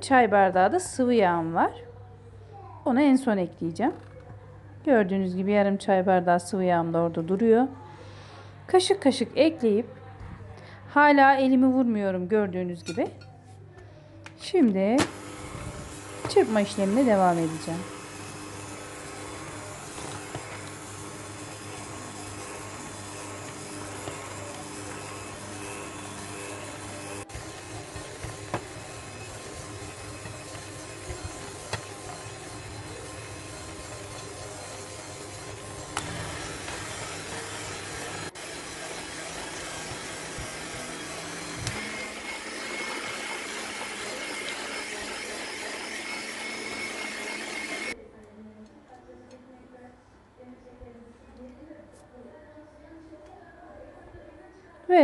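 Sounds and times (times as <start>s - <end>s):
electric hand mixer motor hum: 15.0s - 48.0s.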